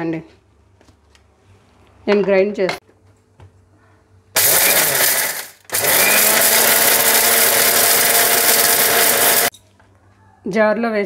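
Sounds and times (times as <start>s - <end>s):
mixer grinder grinding spices: 4.4s - 9.5s.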